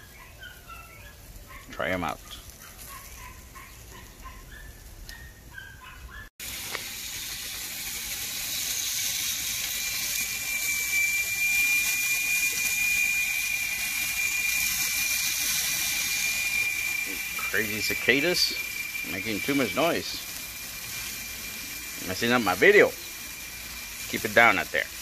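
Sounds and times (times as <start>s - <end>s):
cicadas buzzing: 0.0s - 25.0s
thin steady whine: 6.4s - 25.0s.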